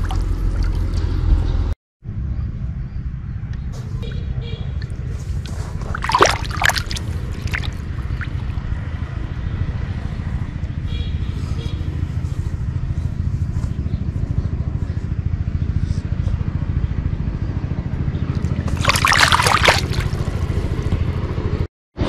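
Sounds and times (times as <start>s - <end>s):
fish splashing in water: 0.0s - 1.2s, 4.8s - 8.7s, 18.4s - 20.3s
steady low rumble: 0.0s - 21.7s.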